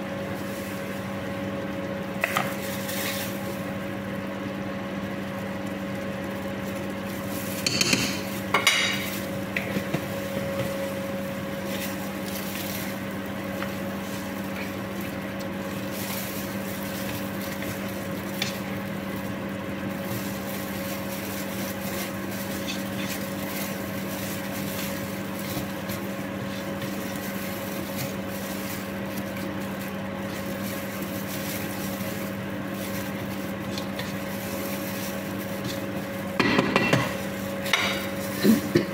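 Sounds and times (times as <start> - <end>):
steady hum: 0.0 - 38.9
wooden spoon scraping pot: 20.1 - 29.5.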